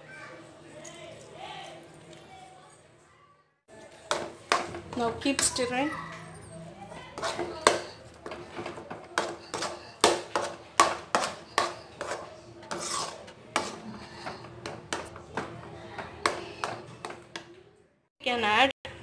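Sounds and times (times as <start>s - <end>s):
spoon scraping metal pan: 4.0s - 17.5s.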